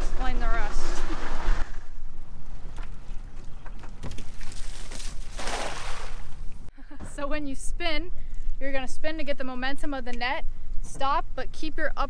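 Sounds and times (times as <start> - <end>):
net splashing on water: 4.4 - 6.4
steady low rumble: 6.4 - 12.0.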